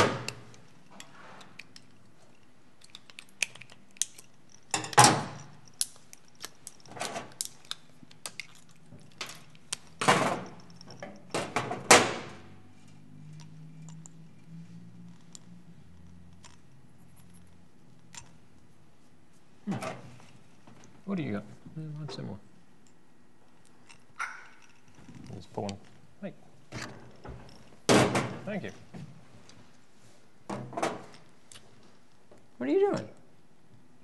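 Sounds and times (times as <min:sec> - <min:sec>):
metal tools clicking and clinking: 0:00.2 - 0:11.7, 0:13.3 - 0:18.4, 0:22.8 - 0:26.0.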